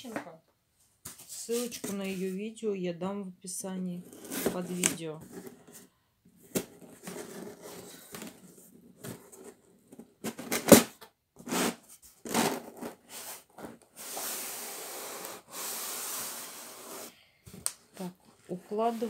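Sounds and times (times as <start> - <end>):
cardboard rubbing: 4.1 - 10.8, 11.4 - 17.1, 18.0 - 19.0.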